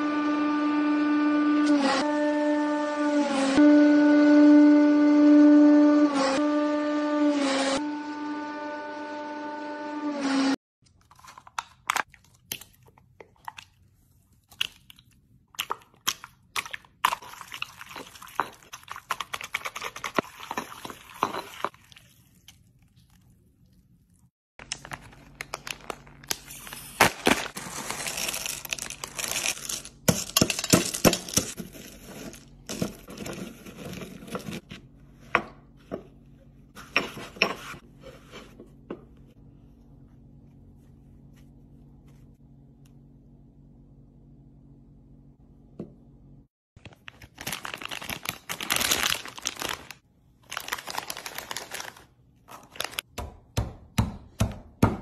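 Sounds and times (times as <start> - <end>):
candy wrapper crinkling: 24.6 - 32.3, 46.8 - 53.1
candy crunching in mortar: 24.6 - 34.4, 46.9 - 53.1.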